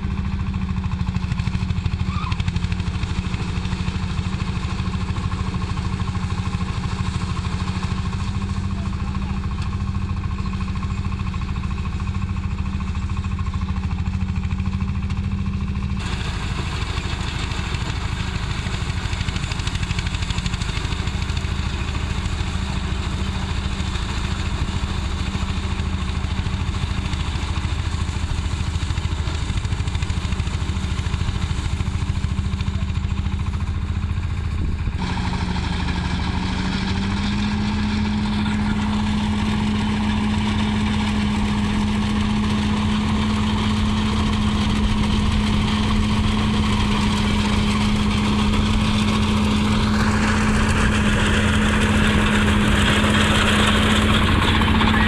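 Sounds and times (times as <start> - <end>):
combine harvester engine: 0.0 - 55.0.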